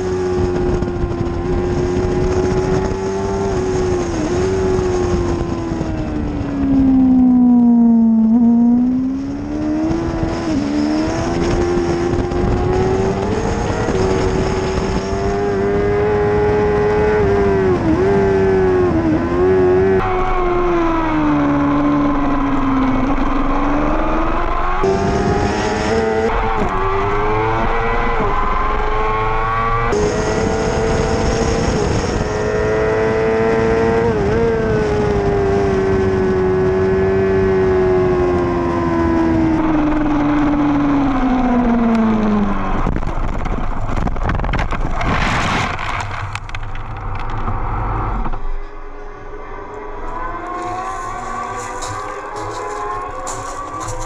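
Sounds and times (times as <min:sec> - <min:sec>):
motorcycle engine running hard: 0:00.0 - 0:07.3, 0:08.0 - 0:20.0, 0:21.5 - 0:45.1, 0:49.6 - 0:54.0
wind rush: 0:00.0 - 0:54.0
motorcycle scraping through gravel: 0:50.5 - 0:54.0.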